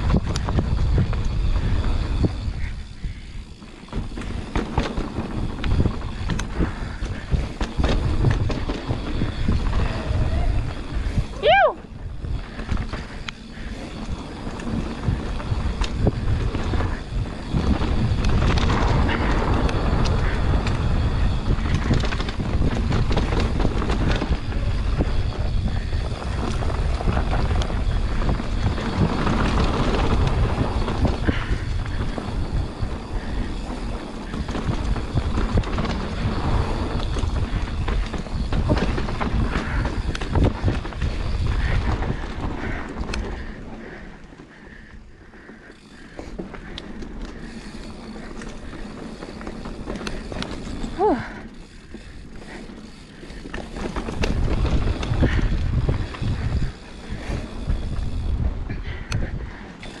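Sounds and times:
chain and frame rattling: 0:00.0 - 0:43.6
wind on the microphone: 0:00.0 - 0:44.0, 0:47.6 - 1:00.0
bike tyre roar on dirt: 0:00.0 - 1:00.0.

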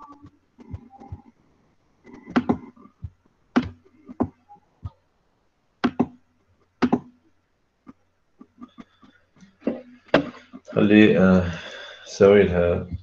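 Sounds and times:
faint low hum: 0:00.0 - 0:13.0
sharp taps and knocks: 0:05.8 - 0:06.2.

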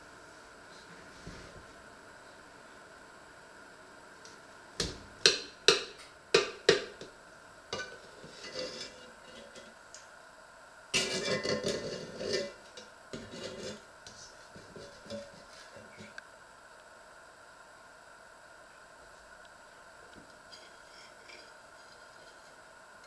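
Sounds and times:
utensil scraping and clattering in pot: 0:07.7 - 0:09.8, 0:11.0 - 0:16.2, 0:20.5 - 0:22.7.

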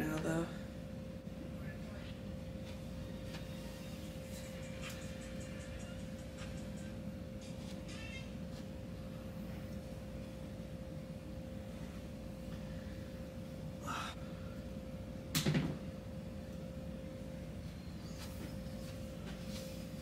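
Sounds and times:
room hum: 0:00.0 - 0:20.0
faint brushing: 0:18.8 - 0:20.0.

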